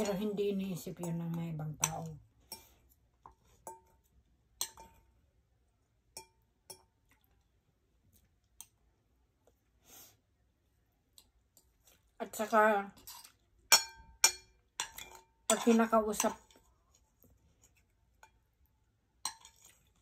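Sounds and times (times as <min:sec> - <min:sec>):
cutlery clinking on plate: 0:13.0 - 0:16.6
soft rustle: 0:16.4 - 0:18.2.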